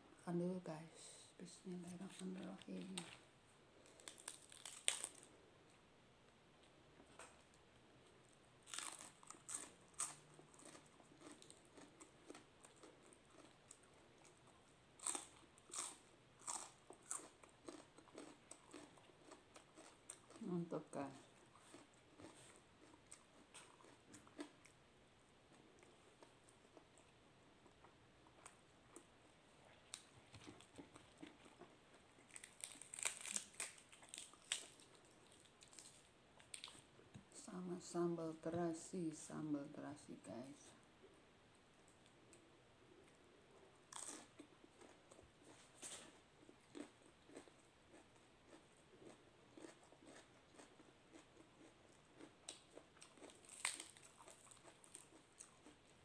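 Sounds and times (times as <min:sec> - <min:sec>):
lettuce crunching being chewed: 0:03.8 - 0:05.3, 0:08.6 - 0:24.8, 0:29.7 - 0:37.0, 0:43.8 - 0:56.0
lettuce leaves tearing: 0:04.0 - 0:05.3, 0:32.3 - 0:34.8, 0:53.4 - 0:54.1.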